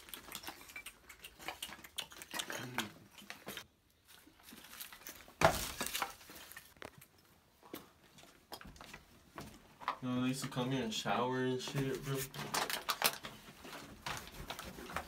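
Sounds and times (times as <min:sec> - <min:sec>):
footsteps on debris and leaves: 0:04.0 - 0:07.1.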